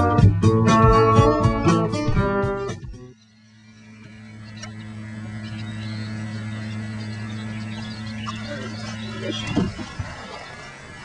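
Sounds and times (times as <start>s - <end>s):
acoustic guitar music: 0.0s - 3.2s
low electrical hum: 2.0s - 11.0s.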